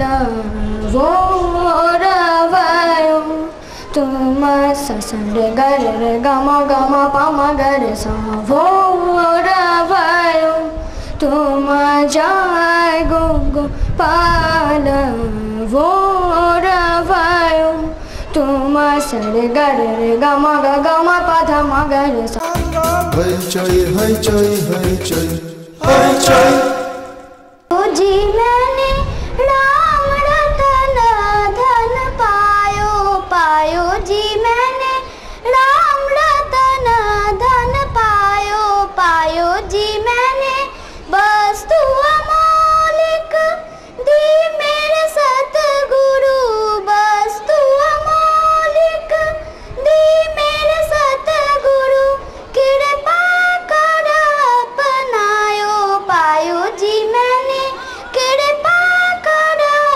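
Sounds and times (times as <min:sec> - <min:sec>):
child singing: 0:27.7 - 0:59.9.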